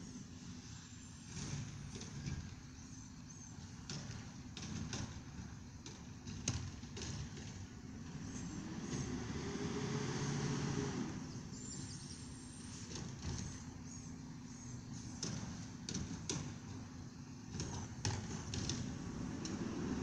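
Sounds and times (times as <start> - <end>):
diesel truck engine revving: 8.0 - 12.8, 18.5 - 20.0.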